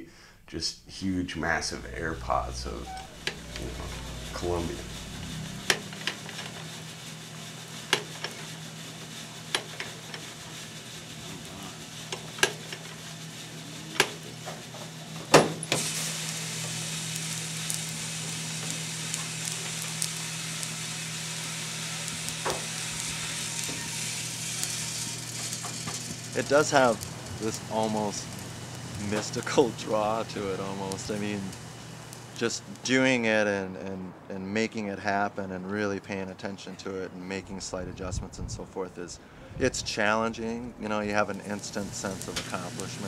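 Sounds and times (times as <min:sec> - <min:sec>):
coffee roaster humming: 0:01.1 - 0:33.4, 0:40.4 - 0:43.0
roasted beans pouring and churning: 0:15.7 - 0:32.8, 0:41.3 - 0:43.0.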